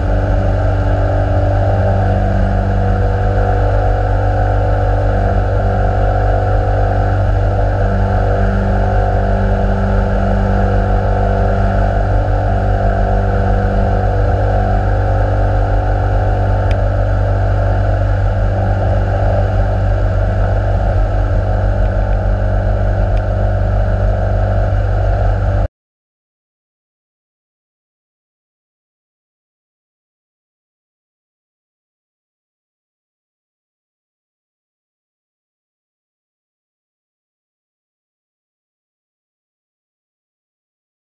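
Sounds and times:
aircraft engine and propeller running: 0:00.0 - 0:25.7.

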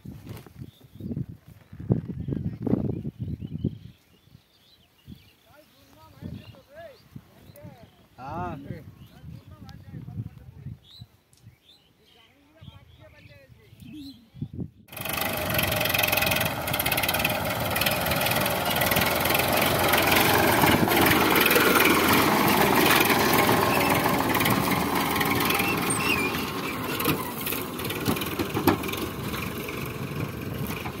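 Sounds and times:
tractor diesel engine running: 0:14.9 - 0:31.0.

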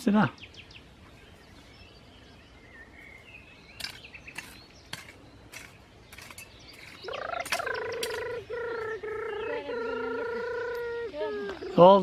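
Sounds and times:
small birds chirping: 0:00.0 - 0:12.0
high-pitched wail: 0:07.1 - 0:11.6.

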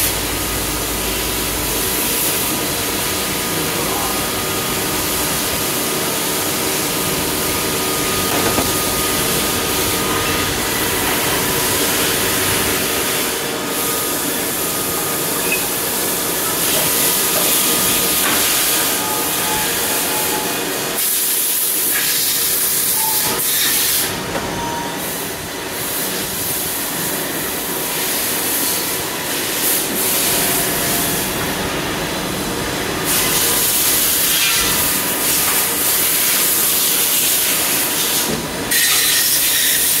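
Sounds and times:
lathes running with steady hiss: 0:00.0 - 0:24.3.

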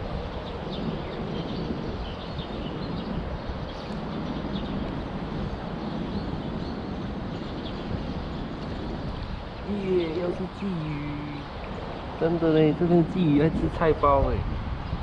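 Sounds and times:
low rumble and hiss: 0:09.2 - 0:15.0.

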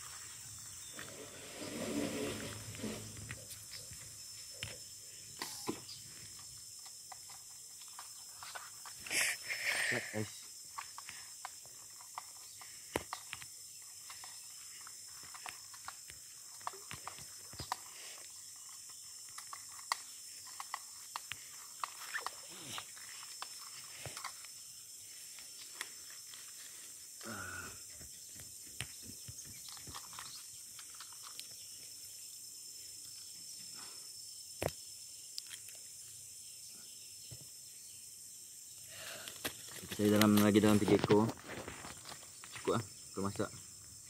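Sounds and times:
short rough noise: 0:01.0 - 0:03.3.

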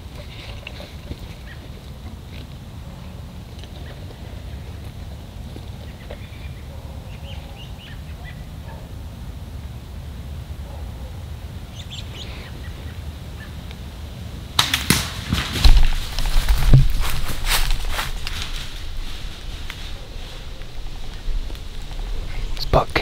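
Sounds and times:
dry leaves crunching: 0:14.6 - 0:23.0.

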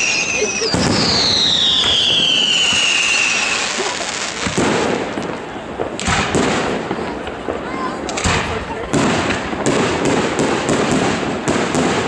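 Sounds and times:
firework whistle falling in pitch: 0:00.0 - 0:03.9.

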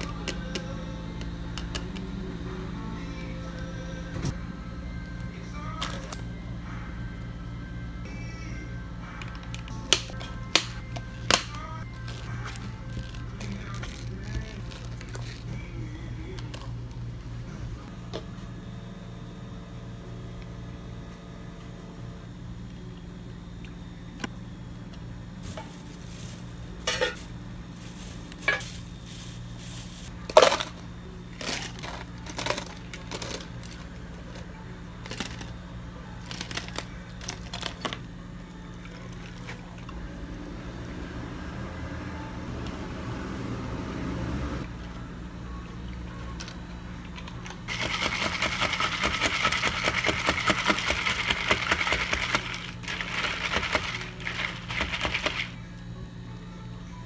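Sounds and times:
steady low hum: 0:00.0 - 0:57.0
ice cubes clattering into cups: 0:31.4 - 0:33.8, 0:47.7 - 0:55.5
ice rattling as drink is stirred: 0:47.2 - 0:55.6.

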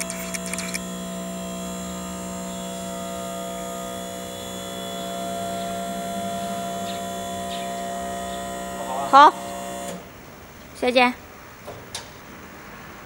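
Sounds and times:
hydraulic pump motor humming: 0:00.0 - 0:10.1.

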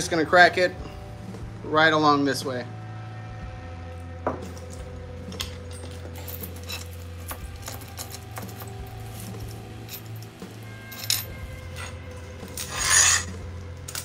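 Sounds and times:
steady low hum: 0:00.0 - 0:14.0
metal chain clinking: 0:04.4 - 0:14.0.

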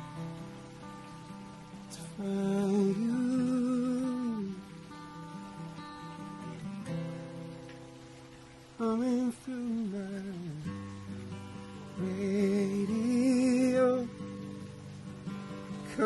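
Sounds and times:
acoustic guitar chords: 0:00.0 - 0:16.0
man singing: 0:01.9 - 0:04.9, 0:08.8 - 0:11.0, 0:11.8 - 0:14.3.

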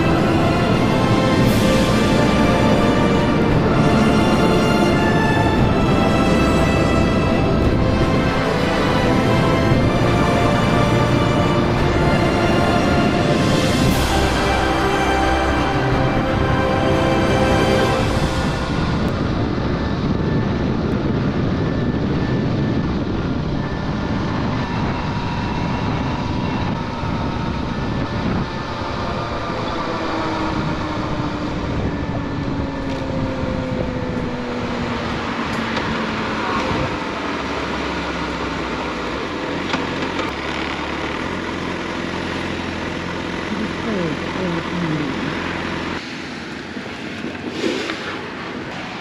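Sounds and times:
wind rush over microphone: 0:16.9 - 0:37.6
motorcycle engine running: 0:18.7 - 0:46.0.

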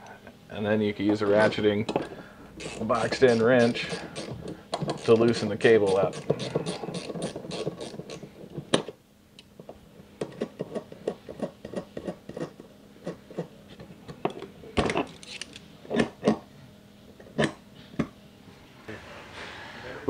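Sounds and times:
ratchet wrench clicking: 0:02.6 - 0:08.2.

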